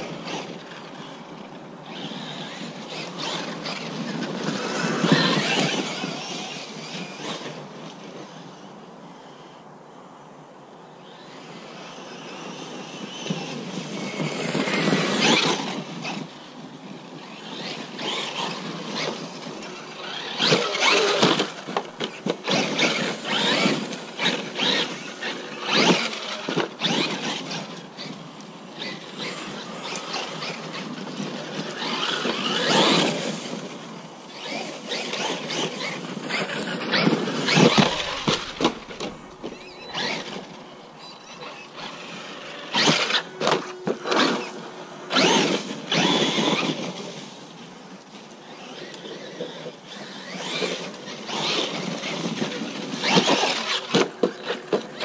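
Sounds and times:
tyres churning dirt: 0.0s - 9.4s, 11.0s - 55.0s
electric motor whining: 17.2s - 47.1s.

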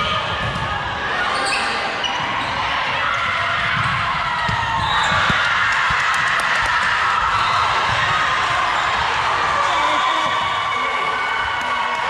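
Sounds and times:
voices and chatter: 6.2s - 12.0s.

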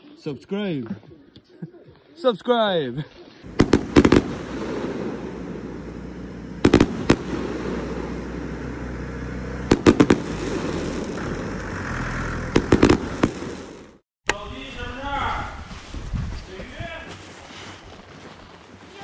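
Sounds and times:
fireworks bangs: 3.4s - 14.0s.

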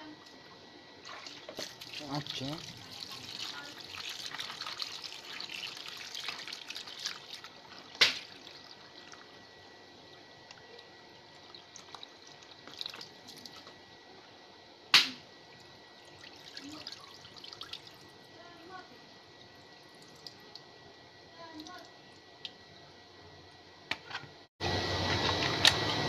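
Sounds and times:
water drips and splashes: 1.0s - 9.4s, 10.4s - 13.8s, 15.6s - 18.1s, 19.4s - 20.7s
water running from a hose: 1.0s - 9.4s, 16.0s - 18.7s.

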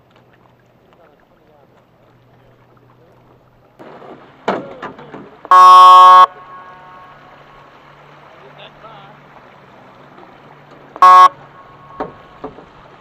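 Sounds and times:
loud horn blast: 5.5s - 7.4s, 11.0s - 12.0s.

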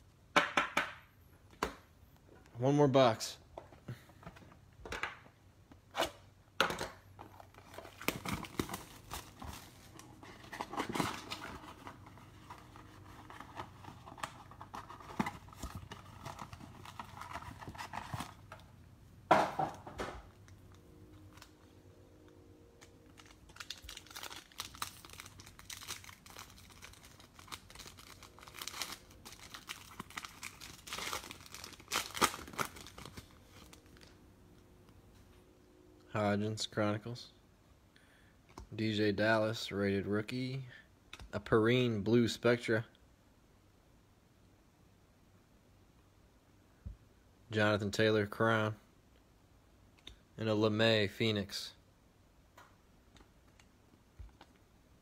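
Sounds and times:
foil wrappers crinkling and tearing: 7.4s - 18.6s, 22.8s - 34.2s.

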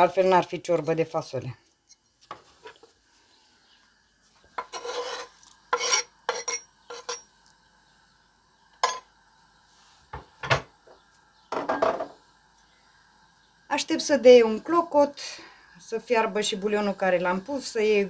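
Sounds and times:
knife scraping wooden board: 4.6s - 7.2s.

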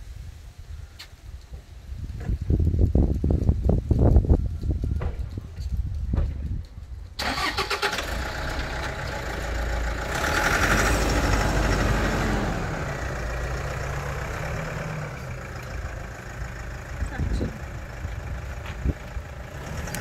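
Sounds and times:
suv engine idling: 7.2s - 20.0s.

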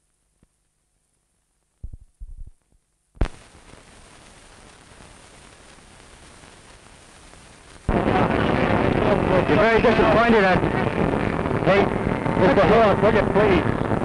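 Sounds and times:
film soundtrack hiss: 0.0s - 14.0s
loud abrupt sound: 7.9s - 14.0s.

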